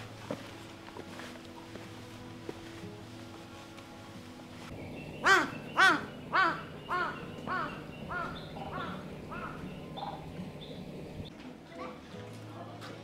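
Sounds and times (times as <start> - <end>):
crow cawing: 5.2 - 9.7.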